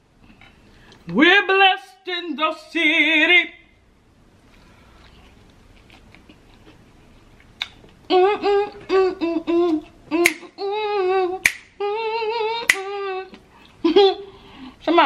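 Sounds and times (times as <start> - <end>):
woman singing: 1.1 - 3.7, 8.1 - 15.0
finger snaps: 10.2 - 10.5, 11.4 - 11.8, 12.6 - 13.4.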